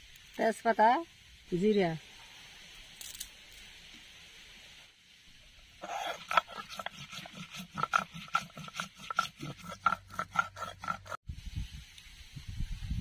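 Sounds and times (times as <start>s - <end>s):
stone roller scraping on grinding slab: 5.8s - 11.2s.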